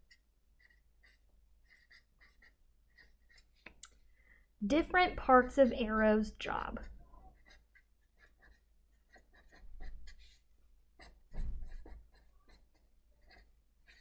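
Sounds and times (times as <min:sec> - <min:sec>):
marker scratching on paper: 0:00.0 - 0:03.8, 0:06.8 - 0:14.0.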